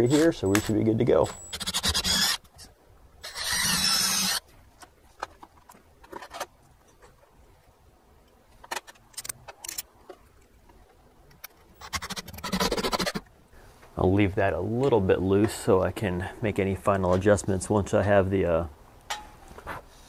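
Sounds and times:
cordless drill motor running: 1.5s - 2.4s, 3.2s - 4.4s
handling noises: 4.4s - 7.7s.

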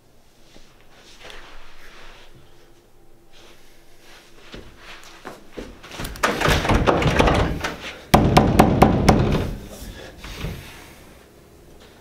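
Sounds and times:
knocks on a door: 6.4s - 9.6s.

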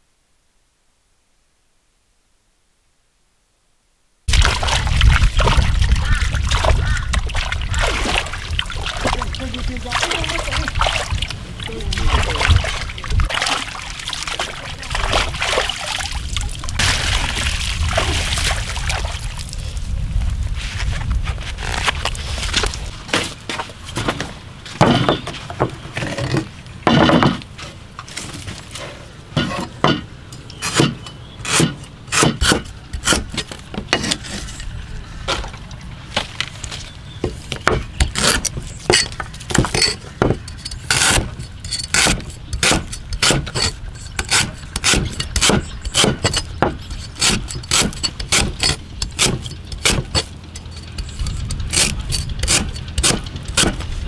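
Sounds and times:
cleaver chopping on wooden board: 29.4s - 33.4s, 37.6s - 50.3s, 51.8s - 53.9s.

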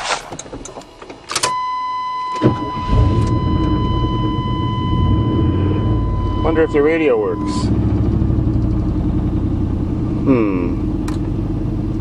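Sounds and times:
truck engine starting and idling: 0.3s - 12.0s
high warning tone: 1.4s - 9.7s.

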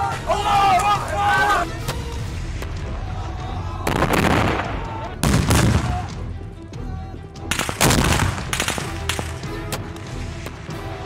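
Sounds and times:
music: 0.0s - 11.0s
explosive blasts: 3.8s - 6.1s, 7.5s - 9.2s
gunfire: 7.5s - 9.5s.

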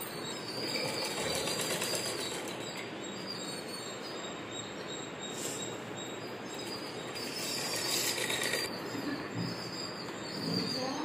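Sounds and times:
sewing machine rattling: 0.6s - 2.7s, 7.4s - 8.7s.

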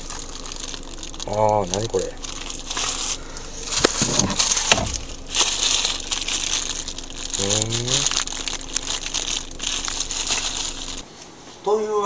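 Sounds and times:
plastic bag crinkling: 0.0s - 11.0s.

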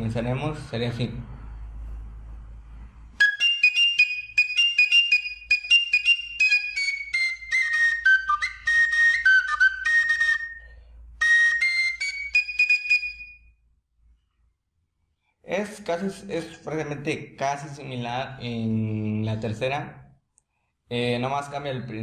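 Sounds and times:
cane flute playing: 3.2s - 13.6s.

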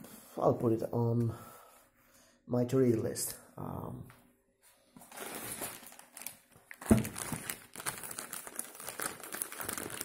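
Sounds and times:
plastic packaging crinkling: 5.0s - 10.0s
thump: 6.9s - 7.1s.

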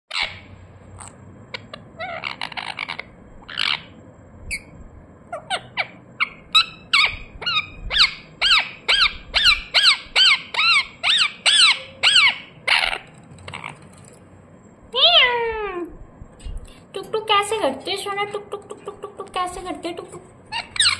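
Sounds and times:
parakeet squawking and chirping: 0.1s - 14.1s, 18.7s - 20.9s.

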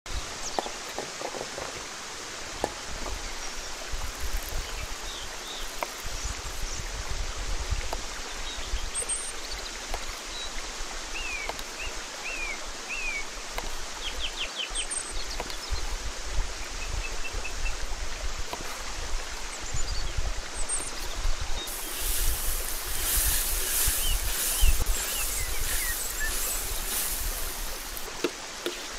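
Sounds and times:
rushing hiss with low rumble: 0.1s - 28.9s
small birds chirping: 19.6s - 28.1s.

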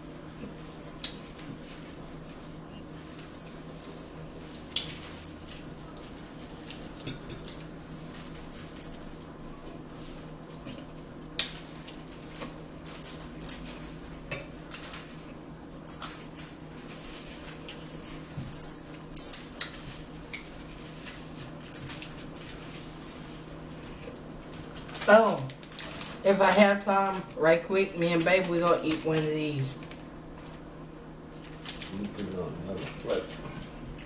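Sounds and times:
steady low hum: 0.0s - 34.0s
forks clicking on plates: 6.7s - 9.0s.

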